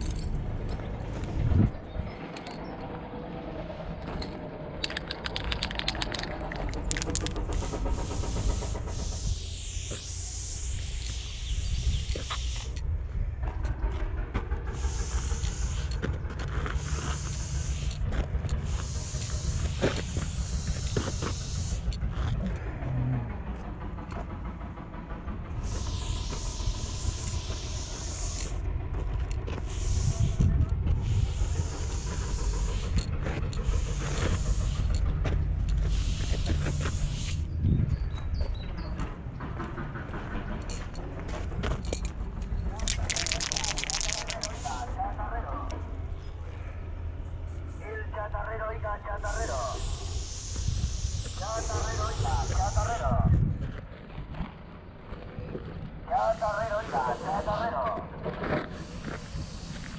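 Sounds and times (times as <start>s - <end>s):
steady low rumble: 0.0s - 59.9s
spray paint hissing: 4.9s - 12.8s, 14.6s - 22.0s, 25.6s - 28.6s, 29.5s - 37.6s, 42.7s - 45.0s, 49.2s - 53.2s, 56.1s - 57.9s, 58.6s - 59.9s.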